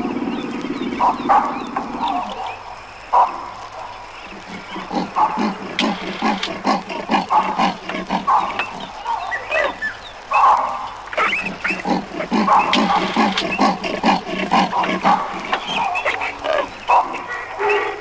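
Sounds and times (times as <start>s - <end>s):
animals calling: 0.0s - 18.0s
high squeaky calls: 4.2s - 18.0s.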